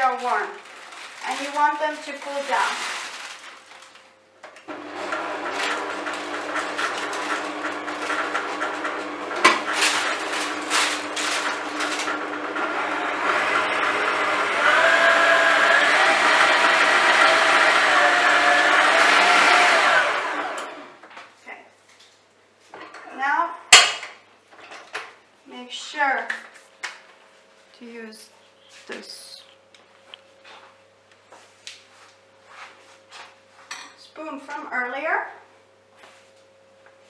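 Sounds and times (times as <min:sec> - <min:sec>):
electric stand mixer running: 0:04.6 - 0:21.0.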